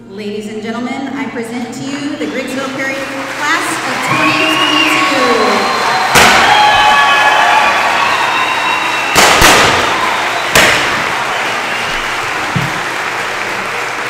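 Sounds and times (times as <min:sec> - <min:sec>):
crowd cheering: 0:01.8 - 0:14.0
confetti cannon bangs: 0:06.0 - 0:07.0, 0:09.0 - 0:13.0.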